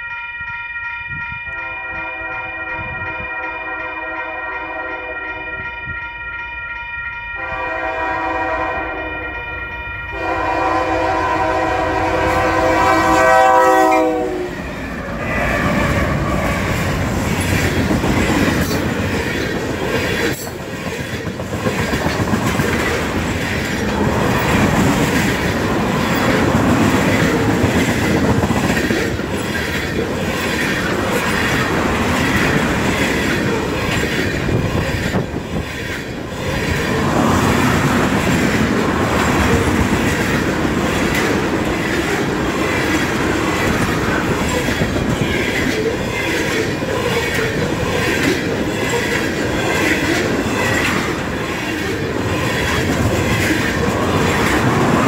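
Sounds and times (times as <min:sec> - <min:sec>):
locomotive chime horn: 0:00.0 - 0:16.8
railroad crossing bell ringing: 0:00.0 - 0:20.8, 0:37.7 - 0:55.0
train rumbling past: 0:01.1 - 0:55.0
wheels clacking over rail joints: 0:14.0 - 0:55.0.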